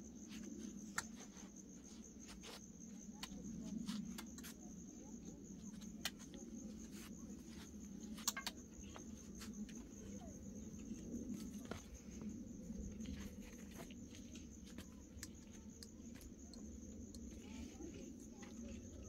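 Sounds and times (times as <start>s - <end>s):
insect trill: 0.0s - 19.0s.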